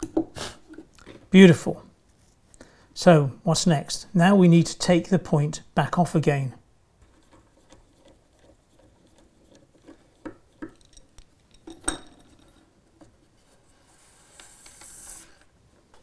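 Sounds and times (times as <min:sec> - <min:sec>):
soft rubbing rustle: 0:02.0 - 0:02.5, 0:13.1 - 0:15.6.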